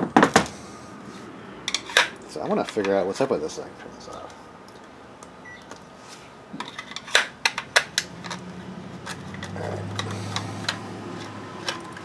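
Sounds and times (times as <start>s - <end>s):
plastic battery pack clacking: 6.6s - 12.0s.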